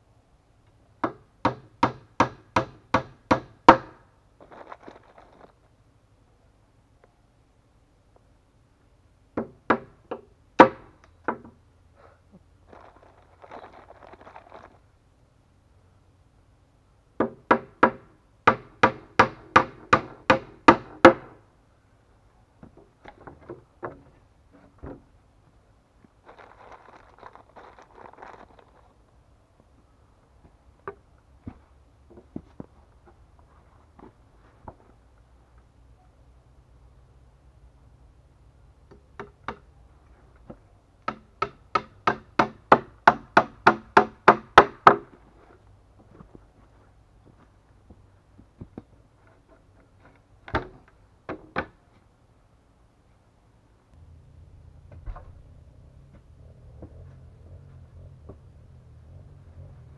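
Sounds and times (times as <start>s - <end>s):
hammer driving nails into wood: 1.0s - 4.0s, 17.2s - 21.4s, 41.1s - 45.1s
wooden knocks and clatters: 22.6s - 25.1s.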